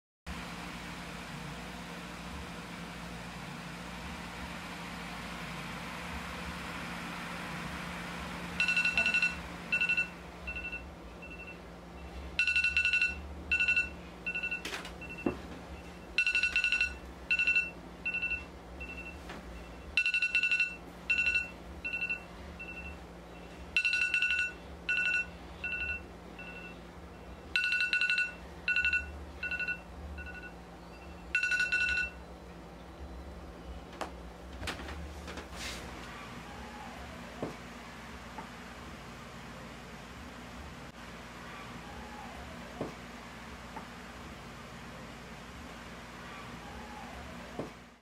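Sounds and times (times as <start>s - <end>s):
smartphone ringtone buzz and beeps: 8.6s - 32.3s.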